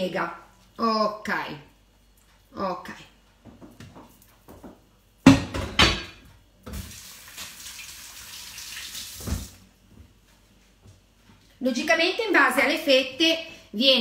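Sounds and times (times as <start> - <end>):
kitchen tap running into sink: 6.7 - 9.6.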